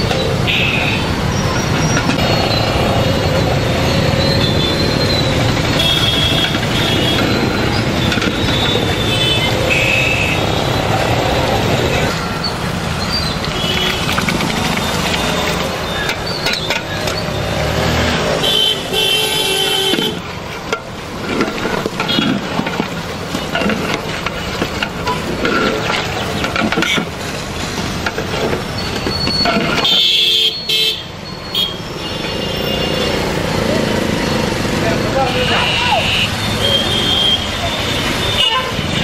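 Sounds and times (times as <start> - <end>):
street traffic passing: 0.0 - 39.0
vehicle horns honking: 0.4 - 1.2, 3.8 - 10.9, 13.5 - 17.7, 18.3 - 20.2, 22.0 - 22.5, 29.3 - 33.4, 35.2 - 39.0.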